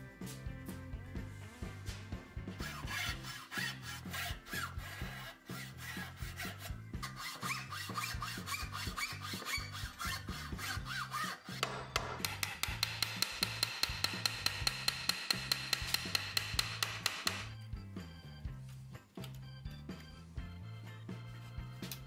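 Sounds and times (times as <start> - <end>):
background music: 0.0 - 22.0
hand saw cutting wood: 2.6 - 17.5
sharp taps: 11.6 - 17.5.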